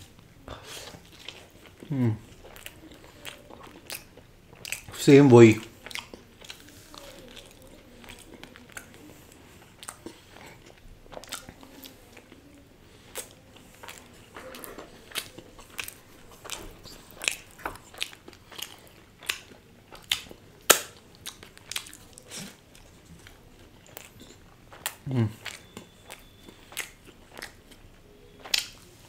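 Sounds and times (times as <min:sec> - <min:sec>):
person chewing pizza: 0:00.0 - 0:29.0
wet mouth clicks: 0:23.9 - 0:27.6, 0:28.4 - 0:28.8.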